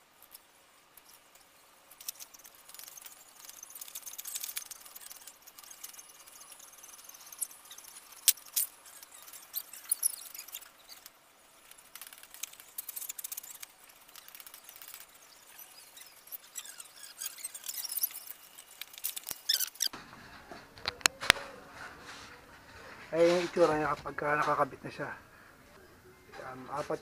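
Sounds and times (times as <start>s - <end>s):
high metal squeaks: 11.9s - 24.8s.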